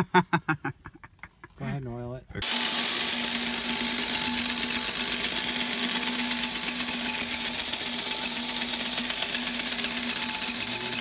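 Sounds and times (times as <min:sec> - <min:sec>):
electric drill boring into metal: 0:02.4 - 0:11.0.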